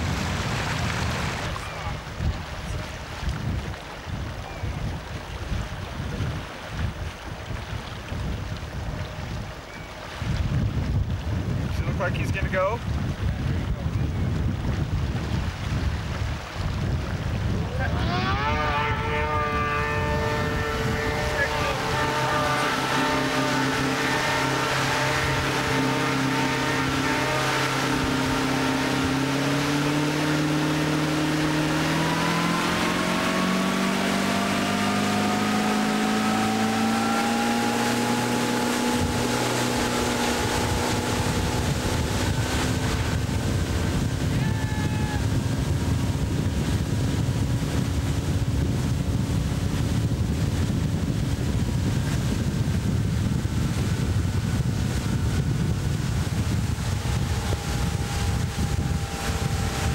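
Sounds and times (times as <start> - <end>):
wind buffeting microphone: 0.0 - 59.9
snowmobile engine running: 17.6 - 59.9.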